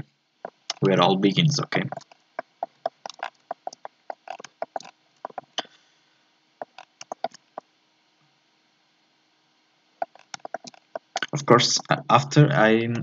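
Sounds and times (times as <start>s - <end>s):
mouse scroll wheel ticking: 1.9s - 5.5s, 6.6s - 7.4s, 10.0s - 11.2s
computer mouse clicking: 1.9s - 5.6s, 6.6s - 7.4s, 10.0s - 11.3s.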